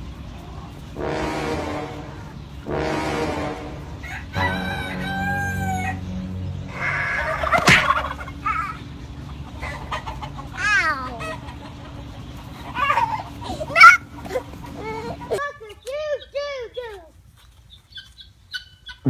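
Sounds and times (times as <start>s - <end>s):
roosters crowing: 0.5s - 15.4s.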